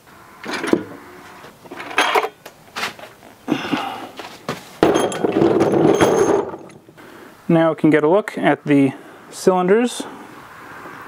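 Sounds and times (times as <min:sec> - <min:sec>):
metal knocks and clunks: 0:00.4 - 0:01.0, 0:04.5 - 0:07.0.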